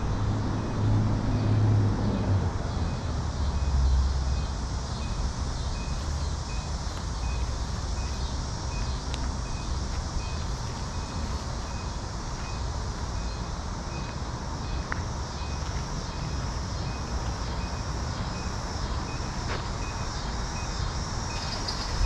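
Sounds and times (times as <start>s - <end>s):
street noise with low rumble: 0.0s - 22.0s.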